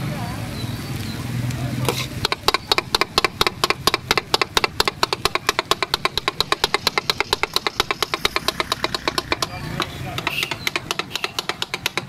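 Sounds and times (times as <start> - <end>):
metal spatulas striking griddle: 1.9 - 12.0.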